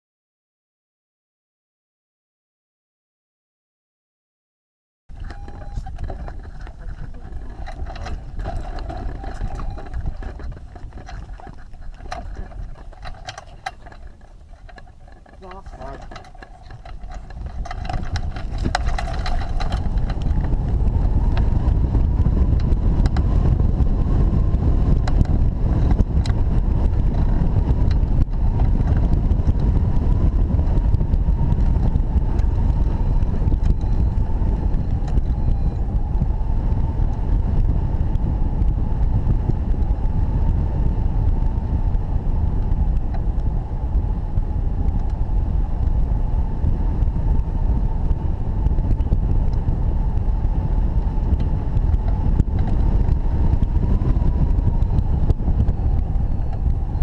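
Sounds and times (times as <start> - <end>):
wind buffeting microphone: 5.1 - 57.0
faint steady whistle: 5.2 - 6.6, 32.9 - 36.0.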